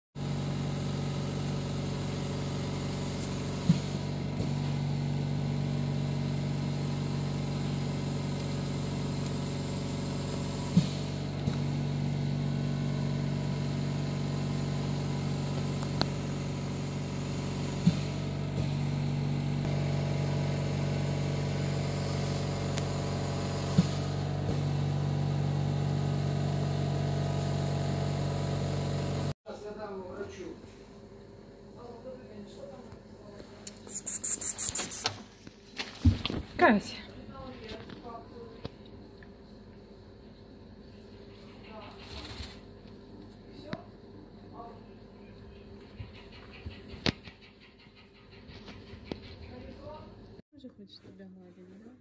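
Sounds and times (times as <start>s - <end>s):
machine hum: 0.2s - 32.8s.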